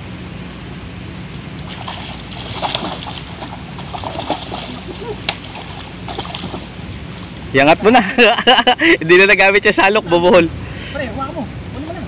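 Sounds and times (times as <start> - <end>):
wind: 0.0 - 12.0
water splashing: 1.6 - 7.5
river rushing: 1.6 - 8.1
fish thrashing at the surface: 1.7 - 7.4.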